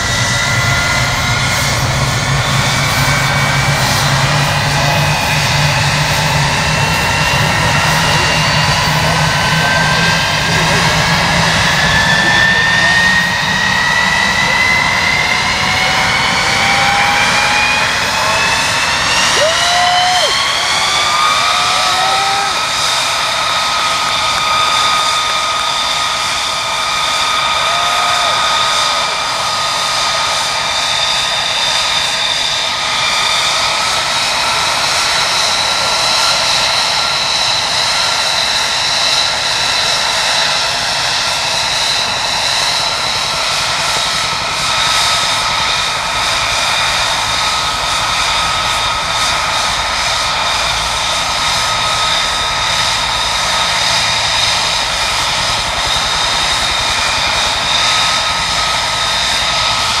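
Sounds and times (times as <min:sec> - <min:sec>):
jet engine idling whine: 0:00.0 - 1:00.0.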